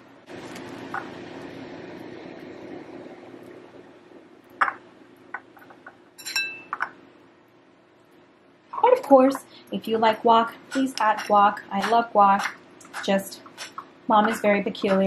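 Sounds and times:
low hum: 0.0 - 8.8.

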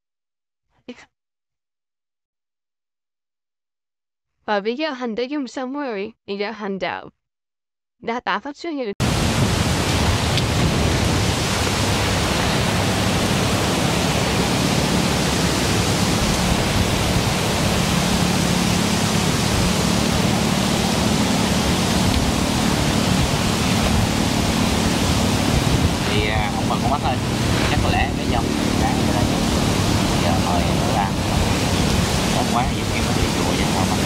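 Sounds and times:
strong wind through trees: 9.0 - 34.0
wind buffeting the microphone: 9.0 - 34.0.

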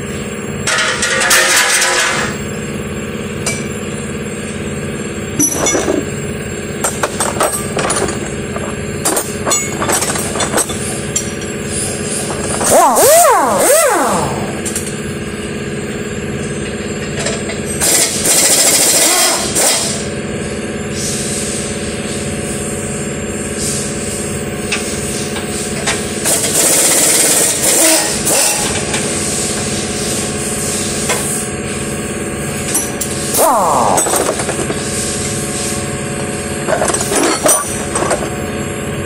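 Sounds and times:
power tool running: 0.0 - 16.4, 17.8 - 20.1, 26.2 - 38.7
steady mechanical hum: 0.0 - 39.0.

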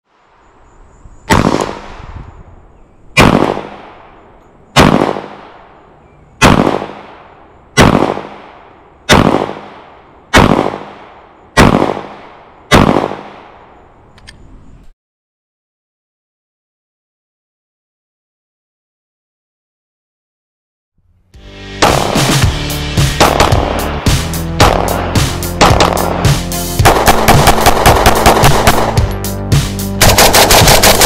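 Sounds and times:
pistol shots with echo: 1.3 - 2.0, 3.2 - 5.8, 6.4 - 13.7, 23.2 - 23.9, 24.6 - 29.2, 30.0 - 31.0.

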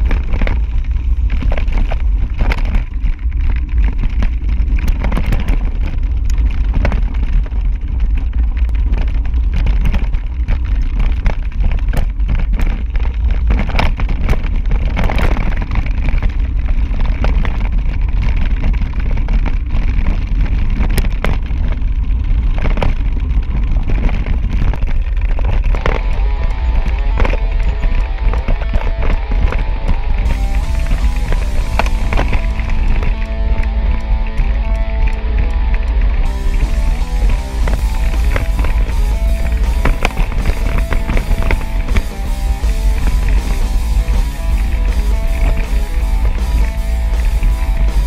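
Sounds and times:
bike rolling on rocky trail: 0.0 - 48.0
tyres rattling on gravel: 0.0 - 48.0
wind buffeting microphone: 0.0 - 48.0.

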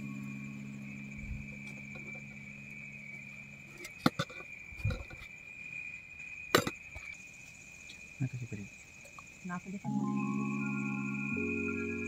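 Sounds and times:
high-pitched tone: 0.0 - 2.0, 9.8 - 12.0
low hum: 0.0 - 3.9, 9.9 - 12.0.

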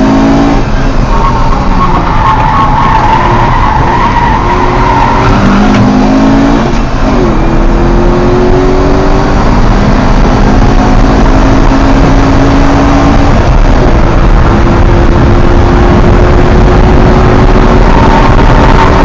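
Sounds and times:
car engine pulling hard: 0.0 - 19.0
road and wind noise: 0.0 - 19.0.

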